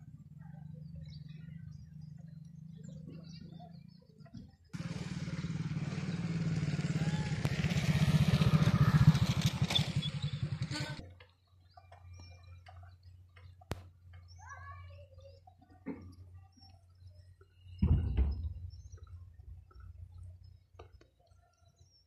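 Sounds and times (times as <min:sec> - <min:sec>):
faint bird chirps: 0:00.0 - 0:04.7, 0:08.2 - 0:22.0
motorcycle engine running: 0:00.0 - 0:11.2.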